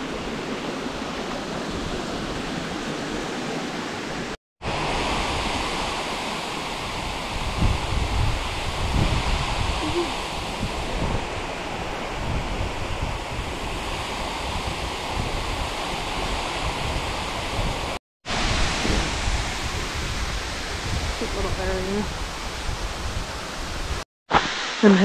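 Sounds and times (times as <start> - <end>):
waterfall rushing: 0.0 - 12.2, 13.5 - 25.0
wind buffeting microphone: 4.6 - 24.0.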